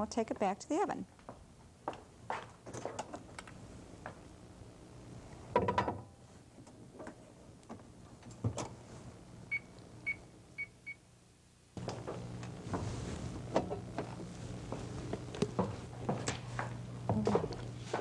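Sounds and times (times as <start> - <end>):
microwave keypad beeps: 9.5 - 11.0.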